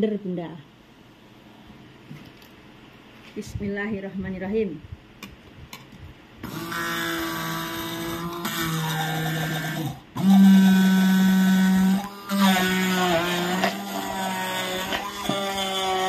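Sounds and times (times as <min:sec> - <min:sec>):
stick blender motor whining: 0:06.4 - 0:16.0.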